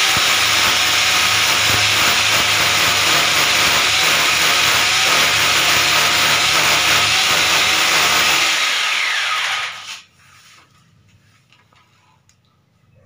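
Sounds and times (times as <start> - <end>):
electric drill boring into wall: 0.0 - 10.0.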